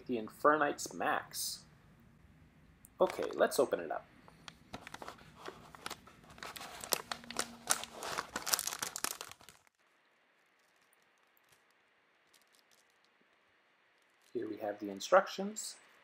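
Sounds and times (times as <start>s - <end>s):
plastic bag crinkling: 4.5s - 14.4s.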